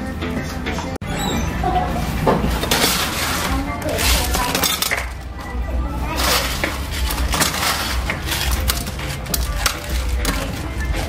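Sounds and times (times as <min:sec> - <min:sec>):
crushed ice crunching in cup: 0:06.1 - 0:11.0.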